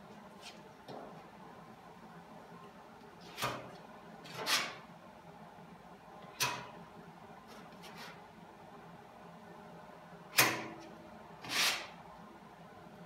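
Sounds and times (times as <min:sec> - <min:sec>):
filler spreader scraping metal: 0:04.3 - 0:04.8, 0:11.4 - 0:12.0.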